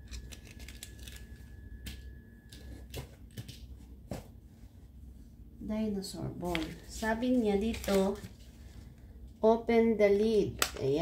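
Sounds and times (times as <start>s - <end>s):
faint steady hum: 0.0s - 11.0s
plastic toy parts clicking: 0.1s - 1.2s.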